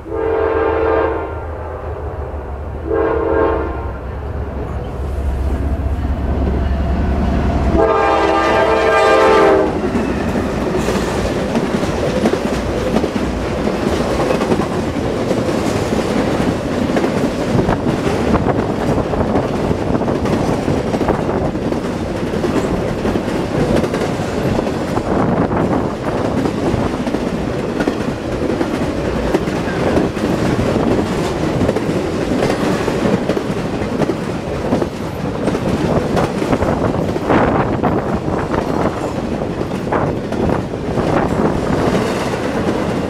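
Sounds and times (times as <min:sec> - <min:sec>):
train horn blast: 0:00.0 - 0:01.9, 0:02.8 - 0:04.3, 0:07.6 - 0:10.0
locomotive rumble: 0:01.5 - 0:43.0
clickety-clack of rail cars: 0:04.5 - 0:43.0.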